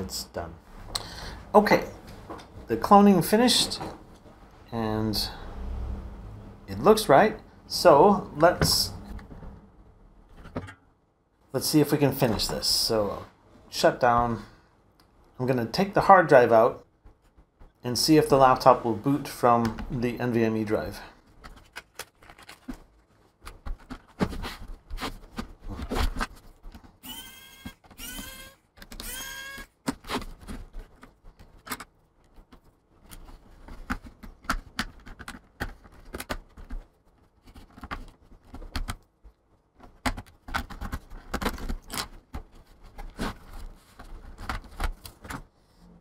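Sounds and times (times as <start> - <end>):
short rising squeaks: 27.0 - 29.7.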